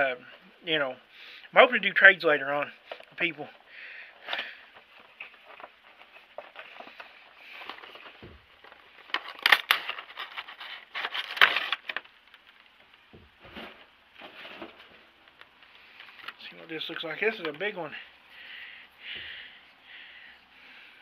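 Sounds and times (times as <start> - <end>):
packaging rustling and crinkling: 2.7 - 17.8.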